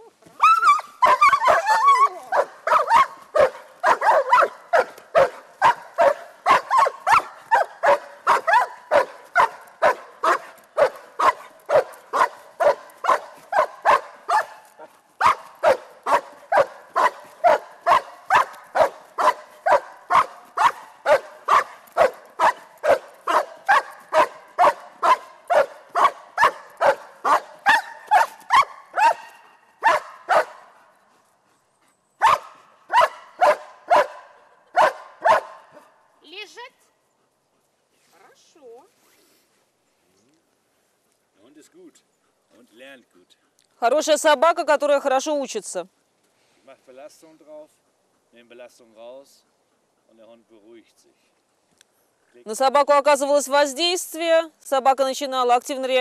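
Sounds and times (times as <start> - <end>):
dog barking: 1.0 - 30.7, 32.2 - 36.0.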